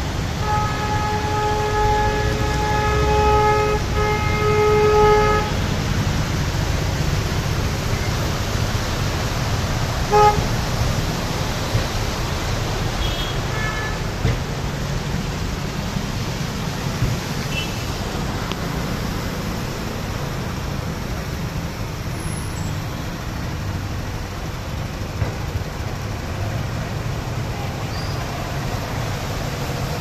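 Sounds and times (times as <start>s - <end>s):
low traffic rumble: 0.0s - 30.0s
vehicle horn honking: 0.4s - 5.6s, 10.1s - 10.5s, 13.0s - 14.0s, 17.5s - 17.9s.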